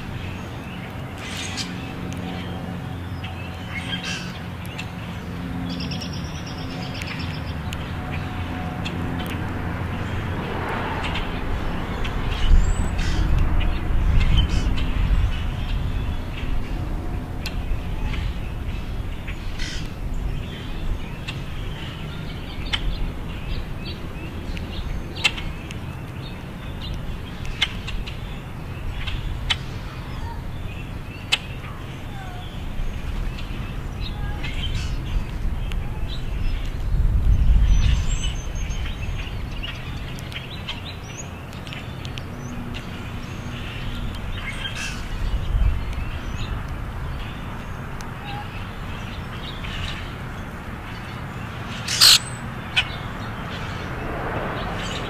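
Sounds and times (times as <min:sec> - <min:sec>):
steady low rumble: 0:00.0 - 0:41.0
grackles chack calls: 0:51.8 - 0:52.9.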